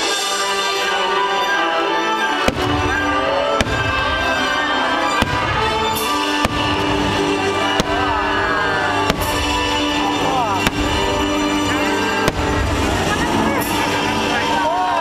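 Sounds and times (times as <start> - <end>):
orchestral show music: 0.0 - 15.0
fireworks bangs: 2.4 - 14.3.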